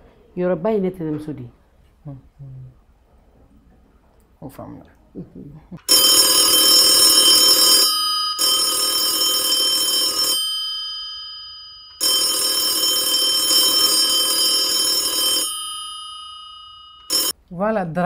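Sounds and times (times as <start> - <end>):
telephone bell ringing: 5.9 - 17.4.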